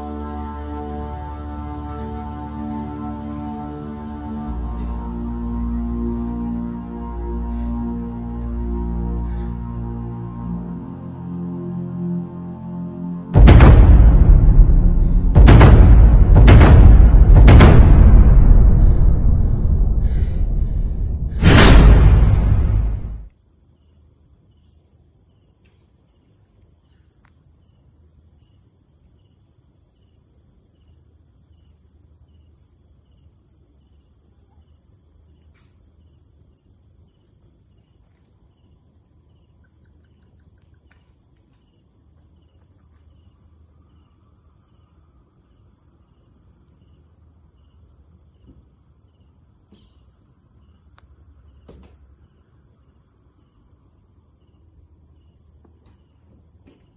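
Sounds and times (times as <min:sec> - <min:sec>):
crickets trilling: 0:23.1 - 0:56.9.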